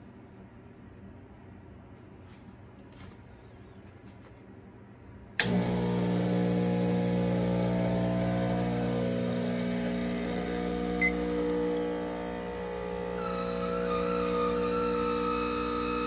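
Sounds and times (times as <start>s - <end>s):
pump switch click: 5.4s - 7.3s
espresso pump humming: 5.4s - 16.0s.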